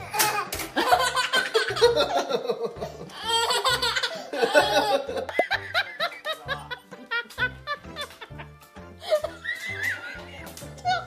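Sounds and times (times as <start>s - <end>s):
baby laughing: 0.0s - 8.4s
adult laughing: 0.8s - 9.5s.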